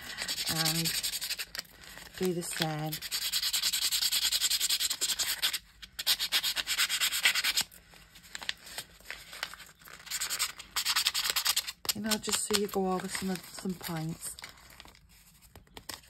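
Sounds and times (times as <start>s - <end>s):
paper crinkling: 0.0s - 3.1s, 7.4s - 16.0s.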